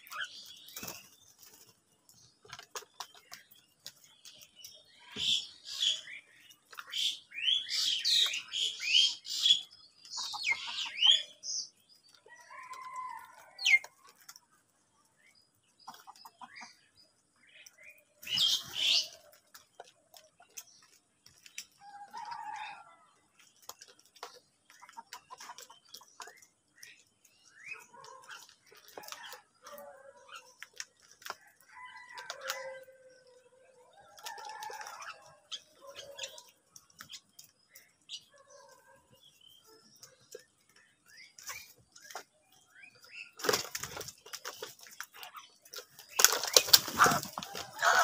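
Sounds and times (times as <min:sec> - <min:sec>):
wings flapping and scuffling: 0:00.1 - 0:05.5, 0:42.9 - 0:48.0
wings flapping: 0:46.2 - 0:48.0.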